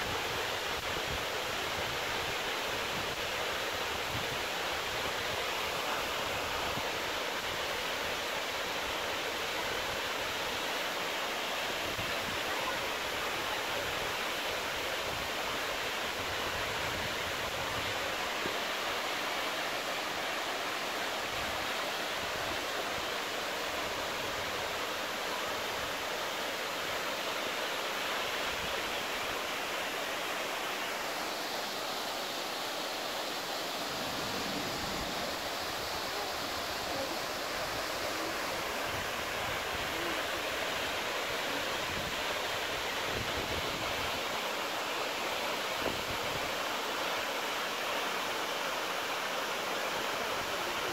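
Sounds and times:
waterfall rushing: 0:00.0 - 0:50.9.

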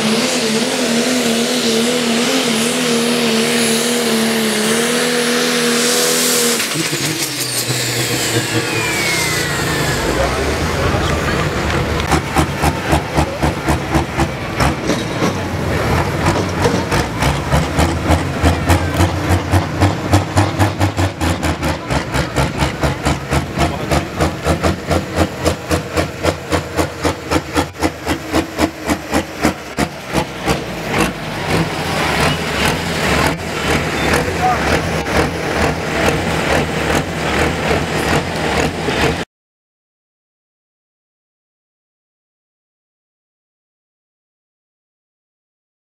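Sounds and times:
diesel tractor engine idling: 0:07.8 - 0:39.2.

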